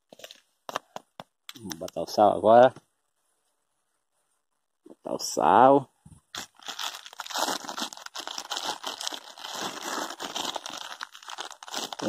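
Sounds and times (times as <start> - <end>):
plastic bag crinkling: 6.3 - 12.0.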